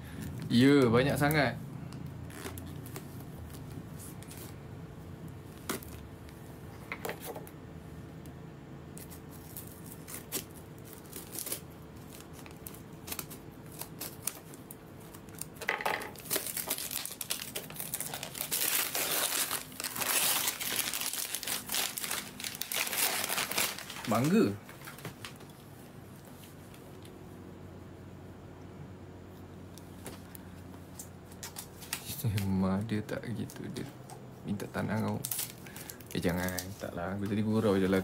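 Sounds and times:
gift wrapping crinkling and tearing: 0:02.3 - 0:04.6, 0:09.0 - 0:25.4, 0:34.8 - 0:38.0.

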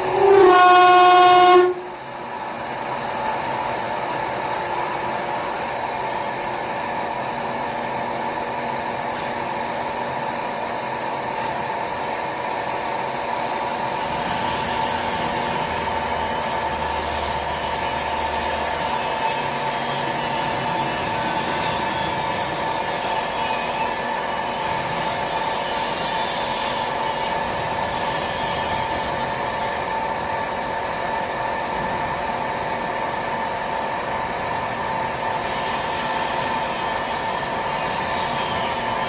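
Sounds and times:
lathe machine whine: 0:00.0 - 0:39.0.

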